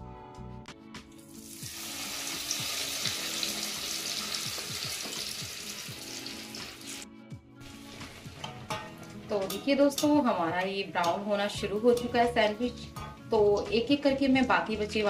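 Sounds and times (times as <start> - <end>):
food deep-frying in oil: 1.2 - 7.0.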